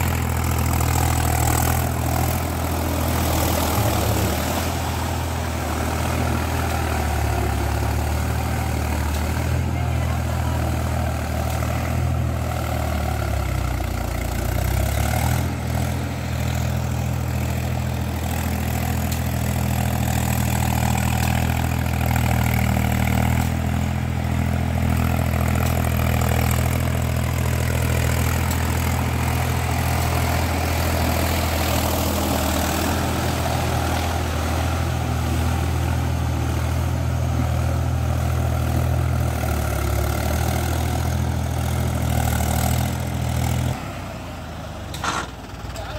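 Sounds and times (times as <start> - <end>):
tractor diesel engine under load: 0.0 - 45.9.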